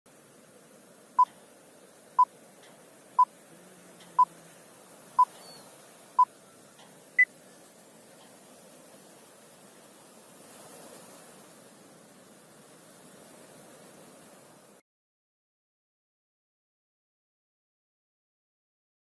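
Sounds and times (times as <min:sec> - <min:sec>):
faint steady hiss: 0:00.1 - 0:14.8.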